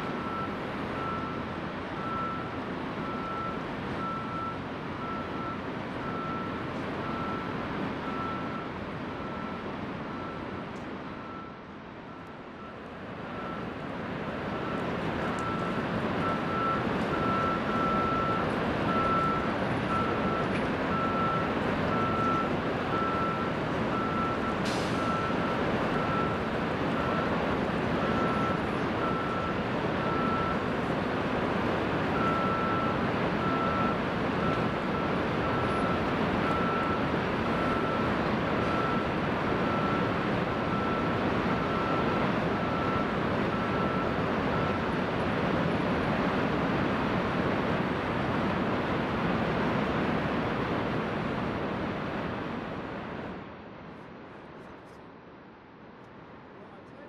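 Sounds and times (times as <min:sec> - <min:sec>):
vehicle reversing alarm beeping: 0:00.0 - 0:13.8, 0:14.5 - 0:30.7, 0:32.1 - 0:45.7
steady background noise: 0:00.0 - 0:57.0.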